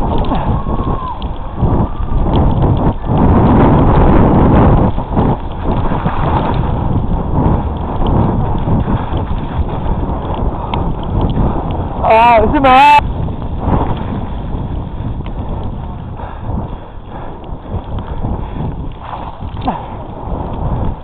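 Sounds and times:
bike rattling over rough trail: 0:00.0 - 0:21.0
wind on microphone: 0:00.0 - 0:21.0.

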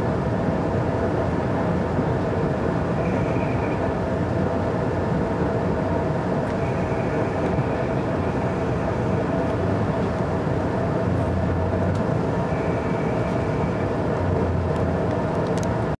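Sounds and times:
train running noise: 0:00.0 - 0:16.0
faint high-pitched tone: 0:03.0 - 0:03.9.

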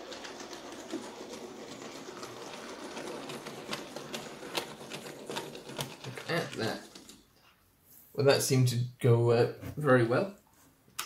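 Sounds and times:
wheels clicking over rail joints: 0:00.0 - 0:07.2.

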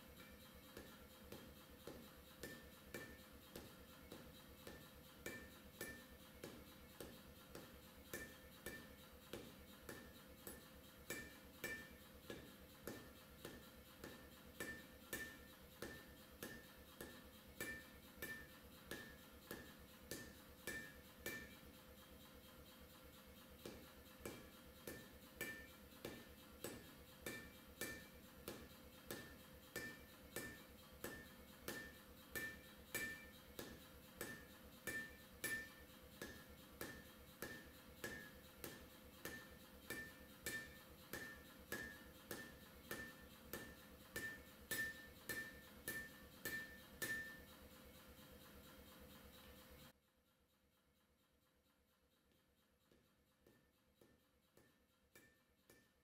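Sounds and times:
hammer blows on anvil: 0:08.1 - 0:21.7, 0:23.6 - 0:47.5.

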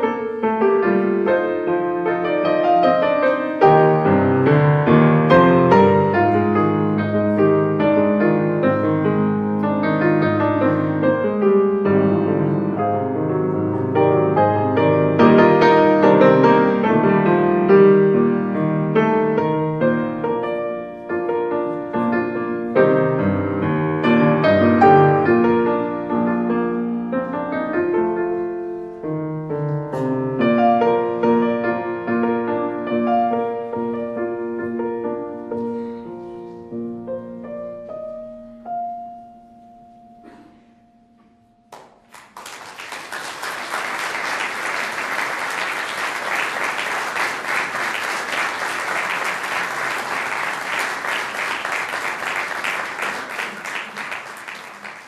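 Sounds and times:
slow classical piano piece: 0:00.0 - 0:42.1
audience applause: 0:41.8 - 0:55.0.

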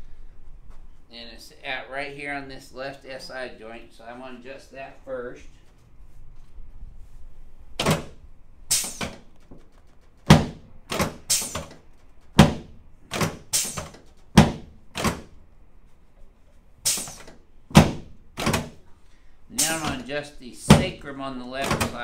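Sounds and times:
treatment table thudding: 0:07.8 - 0:15.3, 0:16.9 - 0:18.8, 0:19.6 - 0:21.0, 0:21.6 - 0:22.0.

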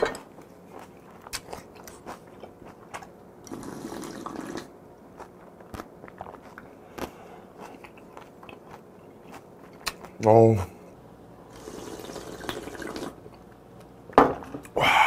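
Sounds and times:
person slurping broth: 0:03.5 - 0:04.7, 0:11.5 - 0:13.2.

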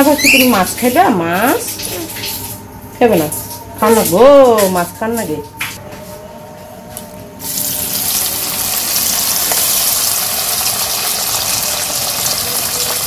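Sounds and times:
fish sizzling in hot oil: 0:07.4 - 0:13.0.

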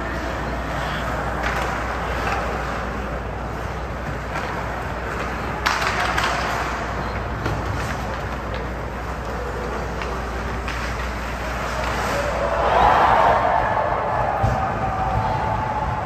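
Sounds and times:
arena rumble and hiss: 0:08.3 - 0:16.0.

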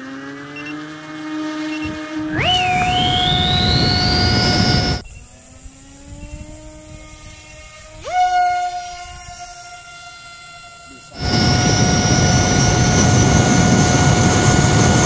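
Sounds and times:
electric motor whine: 0:00.0 - 0:15.0
rushing air: 0:02.2 - 0:05.0, 0:11.2 - 0:15.0.

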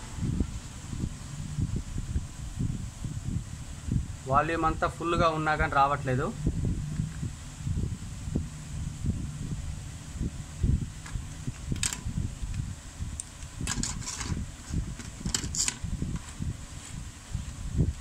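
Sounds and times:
steady low rumble: 0:00.0 - 0:18.0
plastic clicks and scrapes: 0:13.6 - 0:14.4.

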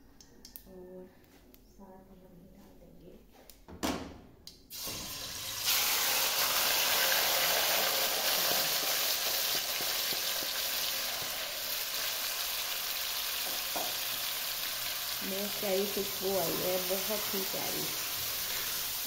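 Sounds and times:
chicken sizzling in hot oil: 0:04.7 - 0:19.0.

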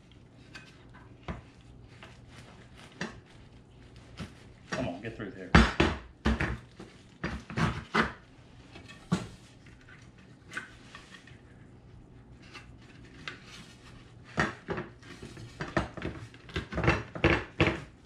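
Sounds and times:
boards knocking on a workbench: 0:05.5 - 0:06.6, 0:15.6 - 0:17.9.

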